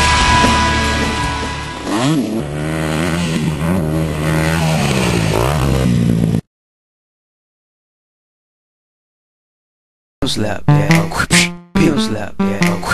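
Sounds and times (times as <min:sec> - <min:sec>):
rock music: 0:00.0 - 0:01.8
dirt bike engine revving: 0:00.0 - 0:06.2.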